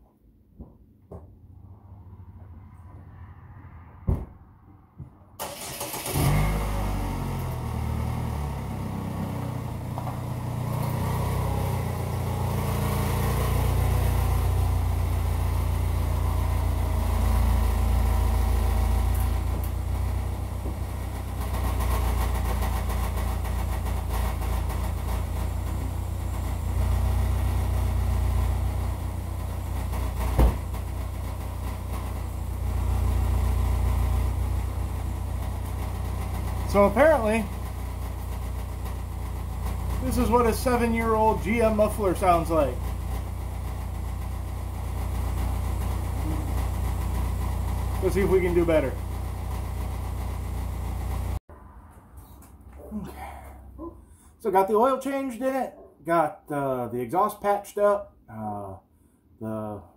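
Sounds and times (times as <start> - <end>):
sharp knock: 4.0 - 4.4
car engine starting: 5.4 - 51.5
deep exhaust rumble: 6.1 - 51.4.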